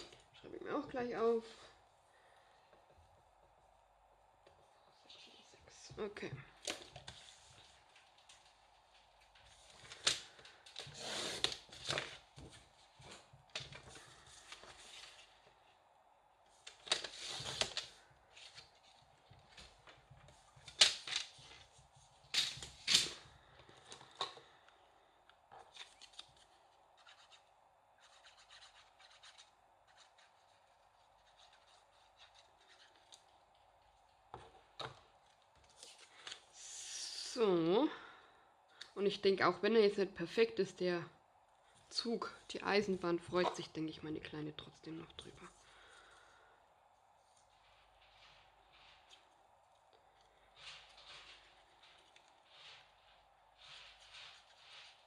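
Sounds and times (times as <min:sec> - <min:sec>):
paper rustling: 0:06.5 - 0:15.6, 0:16.5 - 0:24.6, 0:25.5 - 0:36.6, 0:47.2 - 0:55.0.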